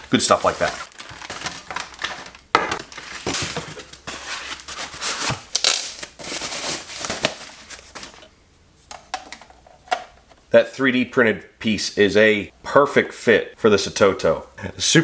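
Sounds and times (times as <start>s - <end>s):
plastic and cardboard crinkling: 0.0s - 8.3s.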